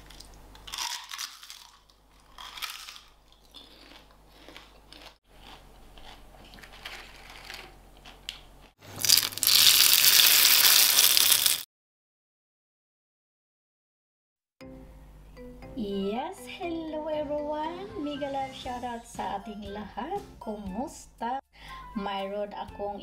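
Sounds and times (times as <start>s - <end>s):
crackers crunching: 0.0s - 11.7s
cracker sizzling in hot oil: 8.9s - 11.7s.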